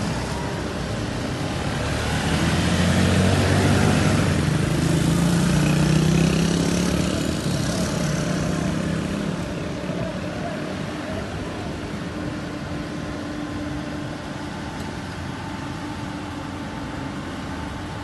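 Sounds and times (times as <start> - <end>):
diesel engine revving: 0.0 - 11.0.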